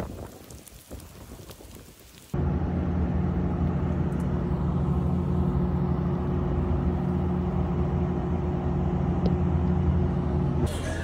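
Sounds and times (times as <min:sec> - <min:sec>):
low engine hum: 0:02.4 - 0:11.0.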